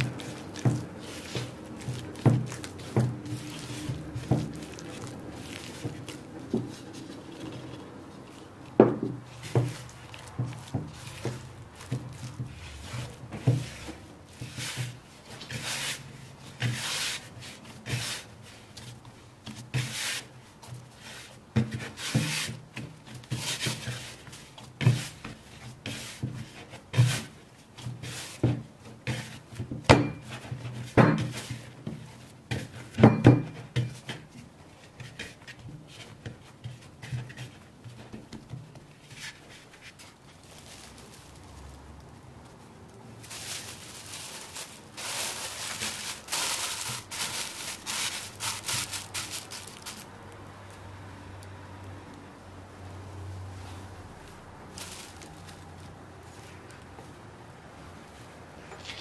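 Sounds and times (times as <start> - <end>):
spatula scraping in wooden bowl: 0.0 - 18.3
hands kneading dough: 0.0 - 59.0.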